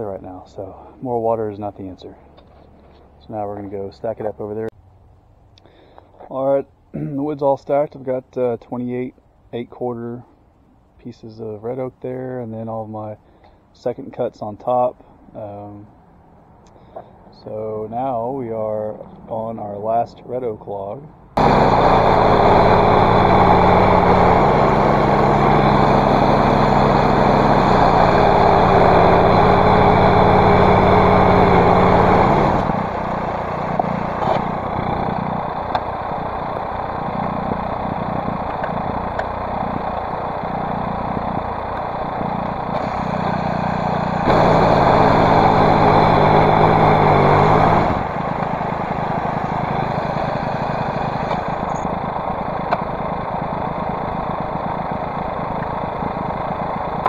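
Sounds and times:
small gasoline engine revving and idling: 21.4s - 57.0s.

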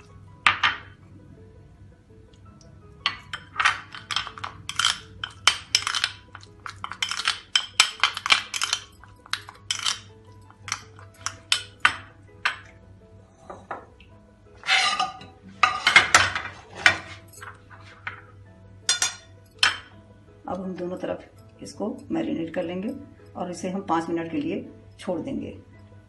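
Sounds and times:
spoon scraping glass bowl: 3.1s - 11.8s, 14.6s - 18.3s.

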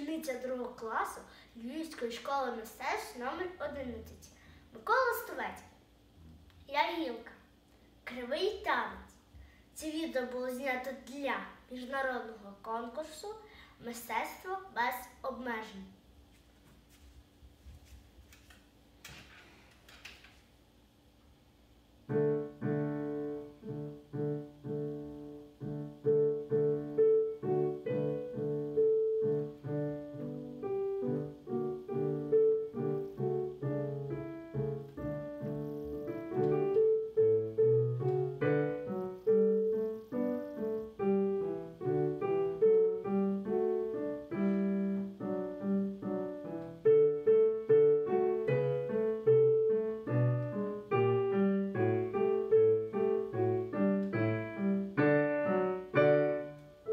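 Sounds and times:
solo piano dance piece: 21.9s - 56.9s.

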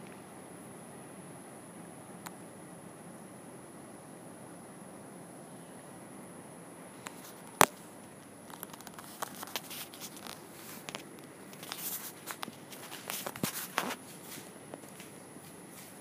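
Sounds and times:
footsteps: 8.5s - 16.0s.

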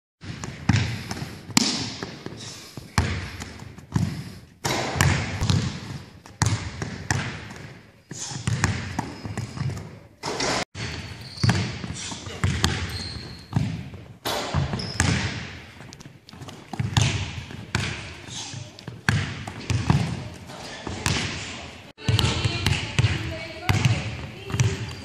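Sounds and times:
basketball bouncing on hardwood: 3.0s - 7.7s, 8.4s - 9.9s, 10.8s - 18.1s, 18.9s - 20.3s, 22.0s - 25.0s.

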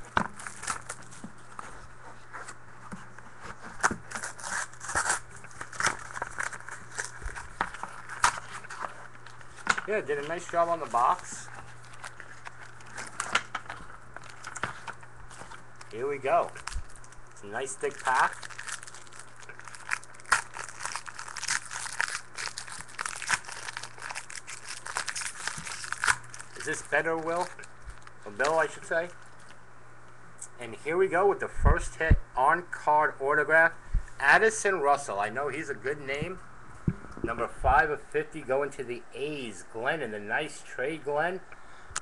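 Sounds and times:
foil wrapper crinkling: 0.0s - 1.7s, 3.7s - 29.6s.

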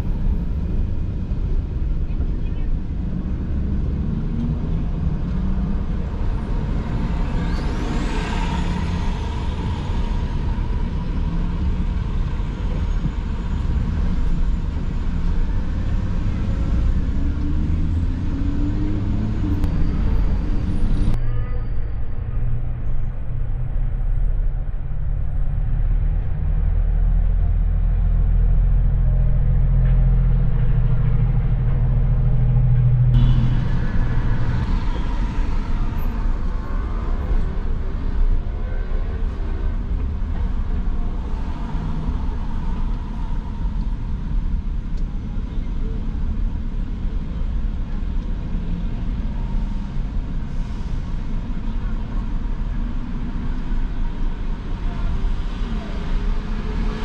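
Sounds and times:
car engine and road rumble: 0.0s - 57.0s
city traffic: 0.0s - 57.0s
low hum: 0.0s - 57.0s.

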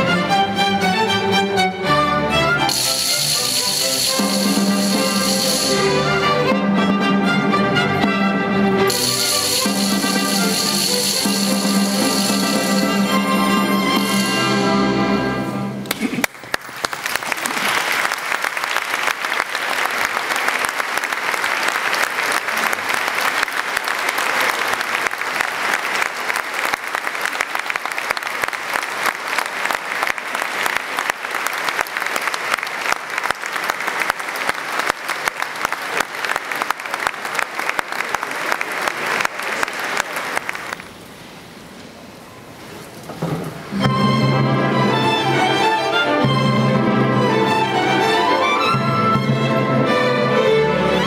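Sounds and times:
string and brass orchestra: 0.0s - 16.2s, 43.4s - 51.0s
audience applauding: 15.8s - 41.0s.

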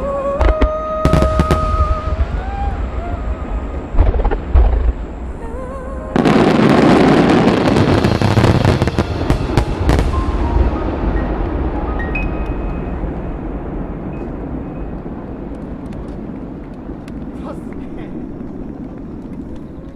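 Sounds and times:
dense firework crackle: 0.0s - 19.9s
firework shells booming: 3.8s - 5.3s.

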